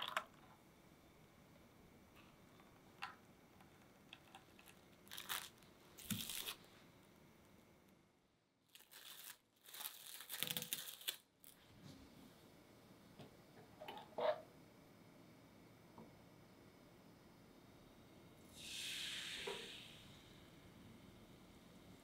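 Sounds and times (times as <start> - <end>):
cling wrap crinkling and tearing: 4.6 - 6.7, 8.6 - 11.6.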